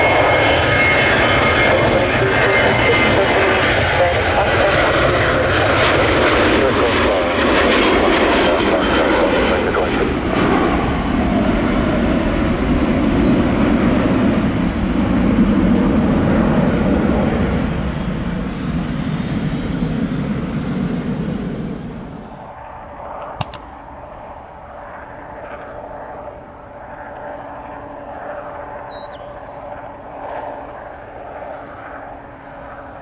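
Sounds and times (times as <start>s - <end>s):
sharp click: 23.4s - 23.8s.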